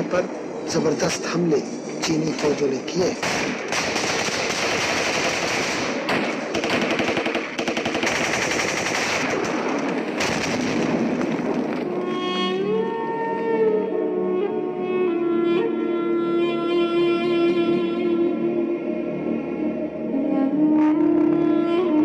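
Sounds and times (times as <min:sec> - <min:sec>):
machine-gun fire: 0:03.2 - 0:12.0
slow bowed-string melody: 0:11.8 - 0:22.0.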